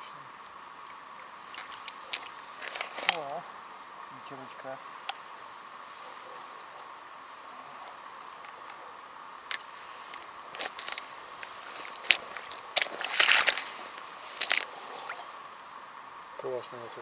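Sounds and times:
clicks and rustles: 0:00.9 - 0:03.4, 0:09.4 - 0:15.3
wet fish slaps: 0:12.0 - 0:15.3.

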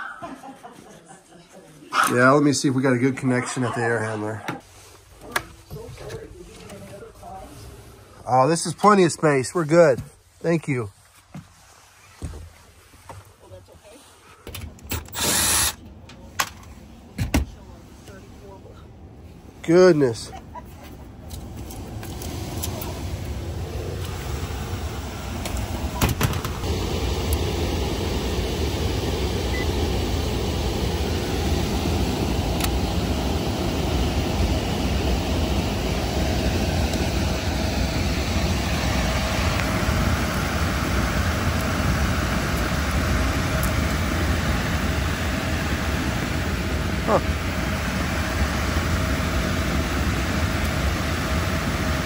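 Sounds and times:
air handler blower whooshing: 0:14.7 - 0:52.0
low hum: 0:20.3 - 0:52.0.

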